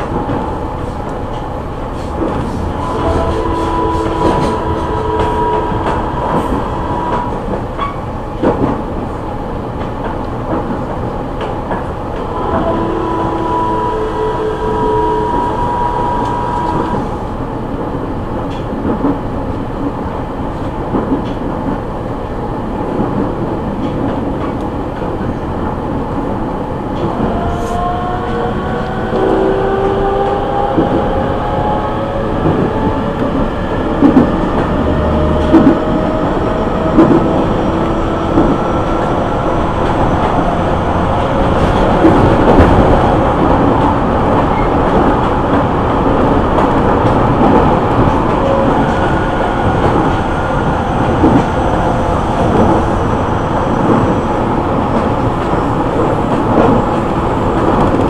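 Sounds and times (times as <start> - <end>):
train knocks: 0.0 - 9.2, 22.8 - 58.0
train wheel-on-rail running noise: 0.0 - 58.0.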